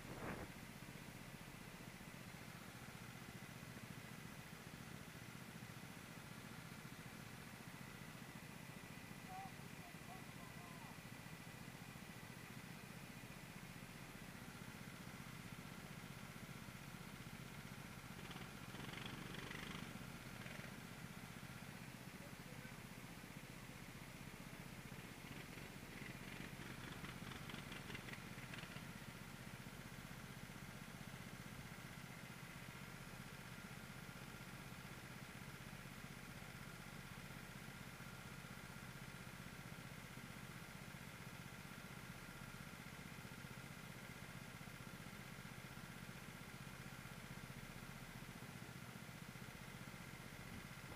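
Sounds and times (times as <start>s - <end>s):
go-kart engines running: 2.2s - 38.5s.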